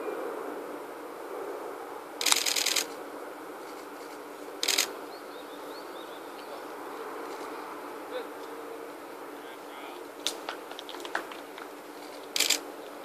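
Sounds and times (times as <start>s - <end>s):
outdoor background hum: 0.0s - 13.0s
camera shutters firing: 2.2s - 2.9s, 4.6s - 4.9s, 12.3s - 12.6s.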